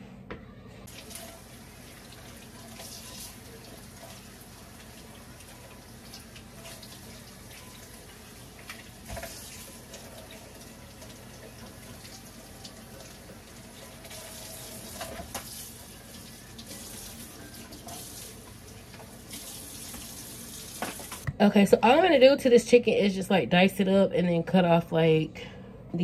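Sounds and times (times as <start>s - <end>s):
tap water running into sink: 0.9s - 21.2s.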